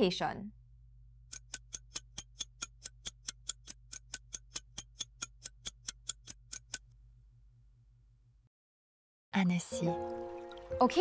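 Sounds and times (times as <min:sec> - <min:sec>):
clock ticking: 0:01.3 - 0:06.9.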